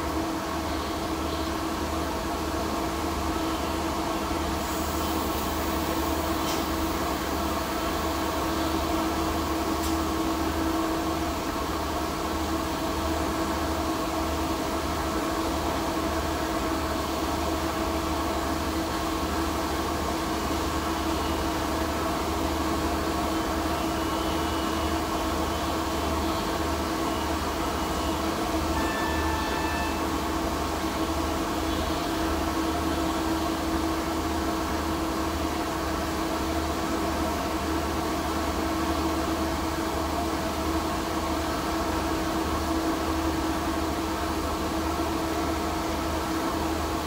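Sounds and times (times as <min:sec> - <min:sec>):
welding torch hiss: 0:04.5 - 0:07.2.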